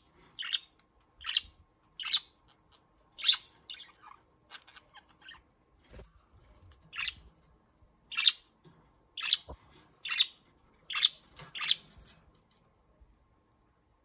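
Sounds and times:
budgerigars chirping: 0.4 - 5.5, 6.9 - 7.2, 8.1 - 8.5, 9.2 - 11.8.

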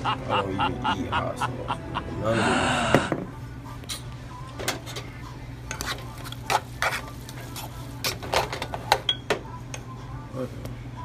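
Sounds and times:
steady low hum: 0.0 - 8.0.

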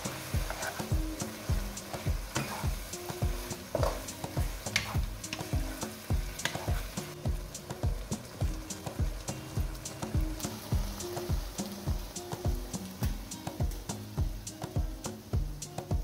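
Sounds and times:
spatula scraping wok: 0.0 - 7.2
background music with beat: 0.0 - 16.0
sauce sizzling: 0.0 - 16.0.

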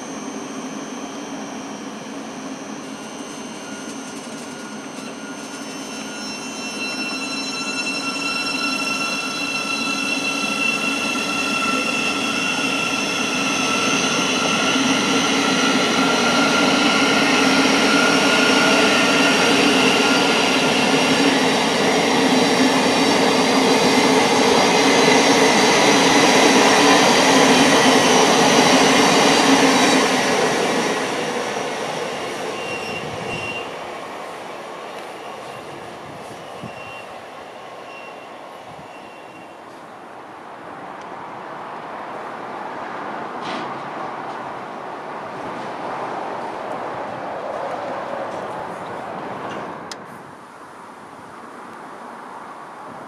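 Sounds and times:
electric train traction whine: 0.0 - 37.0.

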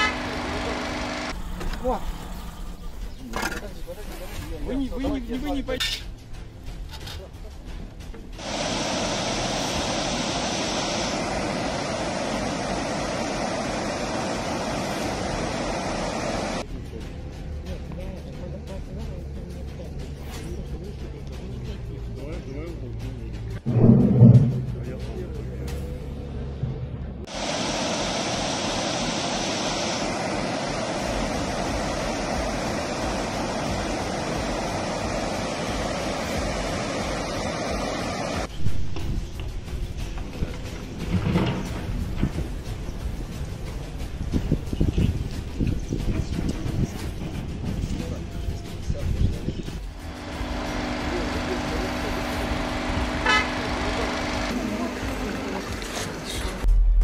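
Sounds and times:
floodwater rushing over spillway: 8.4 - 16.6, 27.3 - 38.5.

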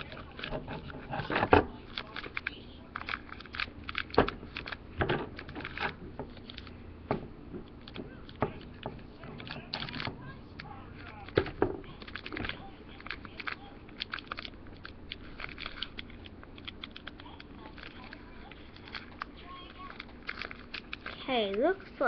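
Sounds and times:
plastic bag crinkling: 0.0 - 6.8, 7.6 - 22.0.

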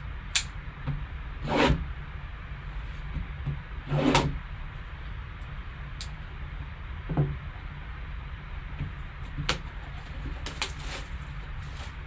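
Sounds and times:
low steady hum: 0.0 - 12.0
plastic wrap ripping: 10.3 - 12.0.

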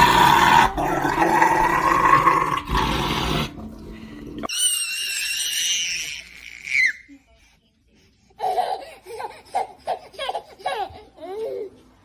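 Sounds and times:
dog growling loudly: 0.0 - 3.6.

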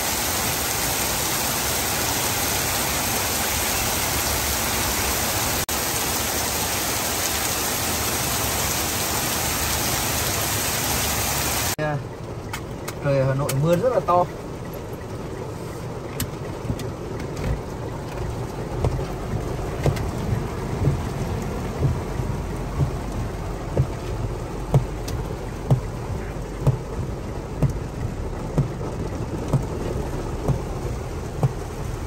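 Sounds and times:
heavy rain on a car: 0.0 - 32.0
windshield wipers thumping: 12.2 - 32.0.

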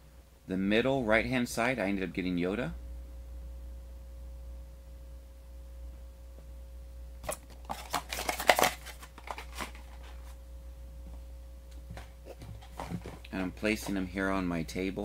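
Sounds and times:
low steady hum: 0.0 - 15.0
packaging tearing and rustling: 7.2 - 10.4.

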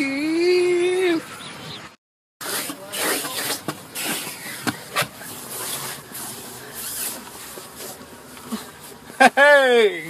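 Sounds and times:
microphone rustling and rubbing: 2.9 - 9.1.

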